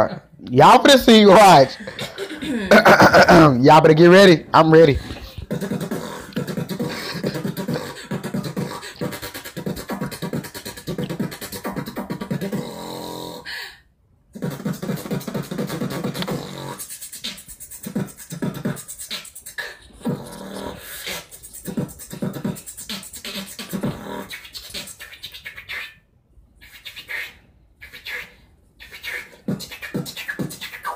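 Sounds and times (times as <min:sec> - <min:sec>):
woman beatboxing: 0:04.8 - 0:13.4, 0:14.4 - 0:26.0, 0:26.6 - 0:30.9.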